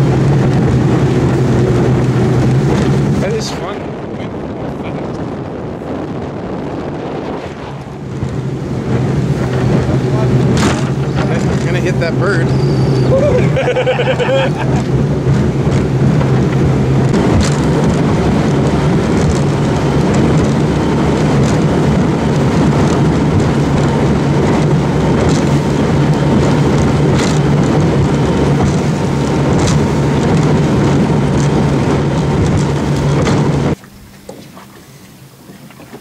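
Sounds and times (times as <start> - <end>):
wind rushing: 0.0 - 33.8
boat motor droning: 0.0 - 36.0
water rushing: 0.0 - 36.0
hull knocks: 10.4 - 11.7.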